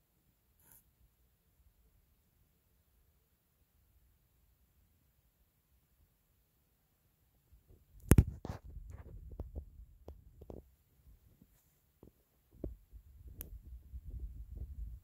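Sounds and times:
handling soft clicks and thumps: 0:07.7 - 0:15.0.

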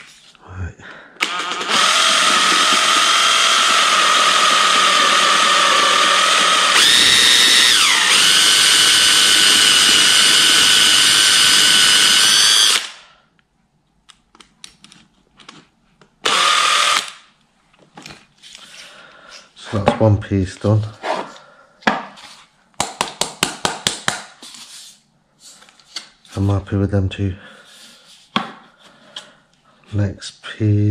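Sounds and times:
cordless drill whining: 0:01.2 - 0:13.0, 0:16.2 - 0:17.2.

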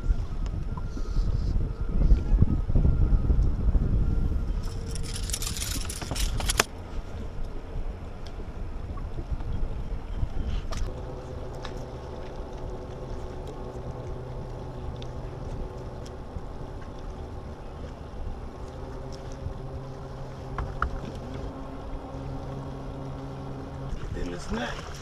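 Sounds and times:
water rumble: 0:00.0 - 0:25.0
wind: 0:00.0 - 0:25.0
electric trolling motor humming: 0:04.1 - 0:10.0, 0:10.7 - 0:25.0.

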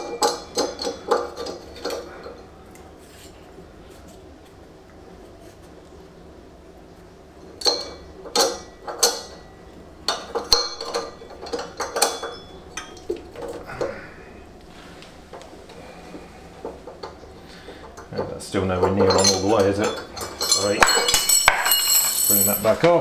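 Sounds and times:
metal parts clinking and scraping: 0:19.0 - 0:22.8.

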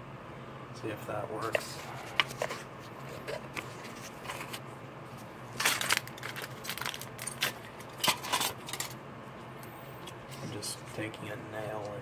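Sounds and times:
aluminum foil crinkling: 0:05.5 - 0:08.8.

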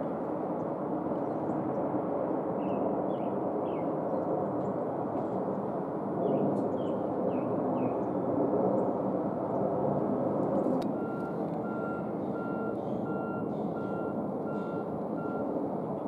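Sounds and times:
jet engines rumbling: 0:00.0 - 0:16.0
vehicle reversing alarm beeps: 0:10.9 - 0:15.7.

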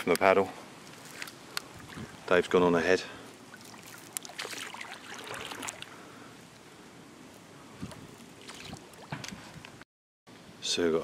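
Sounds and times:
water lapping against canoe hull: 0:01.6 - 0:02.4, 0:03.3 - 0:06.1, 0:07.8 - 0:09.8
small water splashes: 0:03.4 - 0:06.0, 0:07.8 - 0:09.2.

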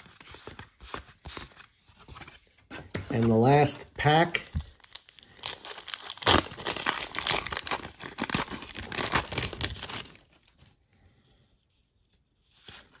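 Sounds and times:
wrapper tearing and crinkling: 0:04.7 - 0:10.6.

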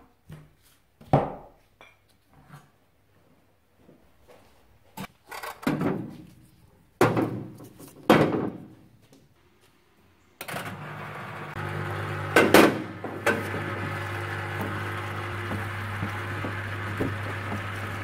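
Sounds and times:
pump humming: 0:10.7 - 0:18.0.

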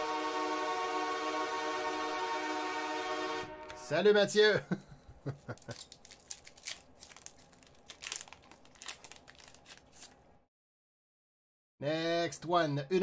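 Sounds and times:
foil wrapper crinkling: 0:05.3 - 0:10.4.

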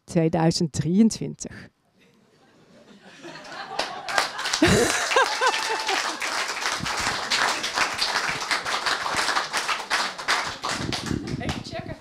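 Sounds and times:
people applauding: 0:03.4 - 0:11.6.

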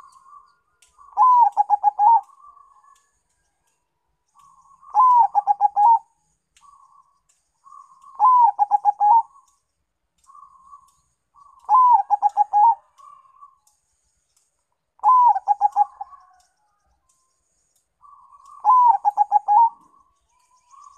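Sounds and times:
dove cooing song: 0:00.0 - 0:03.1, 0:04.4 - 0:09.6, 0:10.3 - 0:13.6, 0:15.0 - 0:16.6, 0:18.0 - 0:20.1
soft bird trilling: 0:04.4 - 0:09.5, 0:10.3 - 0:13.6, 0:18.0 - 0:19.8.

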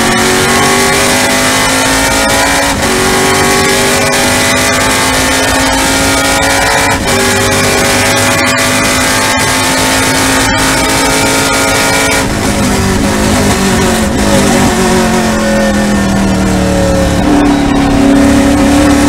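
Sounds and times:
quick gear upshifts: 0:00.0 - 0:19.0
race car engine accelerating: 0:00.0 - 0:19.0.

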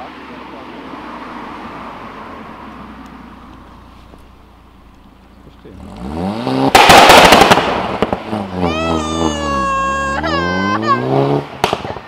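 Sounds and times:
car driving away: 0:00.0 - 0:12.0
engine revving: 0:05.4 - 0:12.0.

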